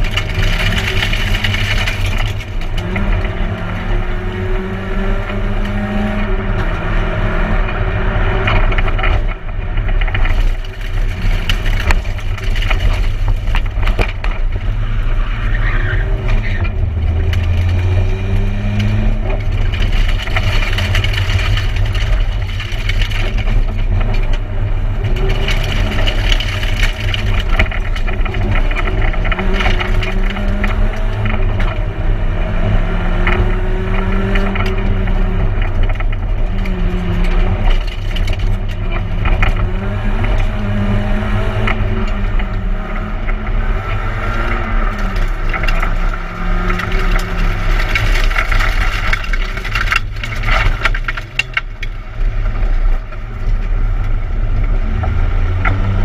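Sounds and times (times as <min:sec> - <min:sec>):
rally car engine revving: 0:00.0 - 0:56.0
tyre and road noise: 0:00.0 - 0:56.0
knocks and rattles from car body: 0:08.4 - 0:14.9.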